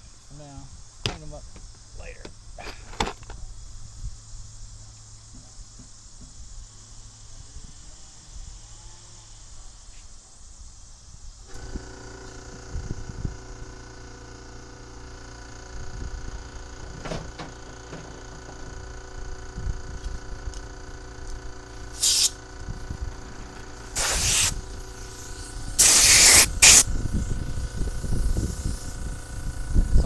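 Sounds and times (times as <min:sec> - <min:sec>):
hissing spray blasts: 0:21.1 - 0:30.0.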